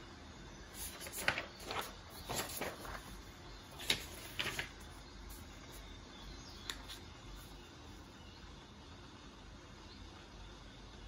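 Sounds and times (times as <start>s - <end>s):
insects: 0.1s - 11.0s
birds: 0.4s - 9.1s
paper rustling: 0.7s - 5.8s.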